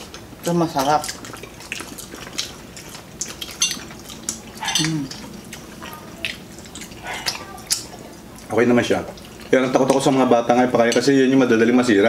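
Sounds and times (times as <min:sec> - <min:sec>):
forks scraping ceramic plates: 0:04.6 - 0:05.0.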